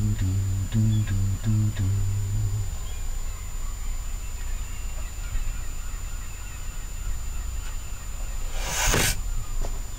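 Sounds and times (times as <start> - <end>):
low rumble: 0.0 - 4.0
faint bird calls: 0.7 - 9.9.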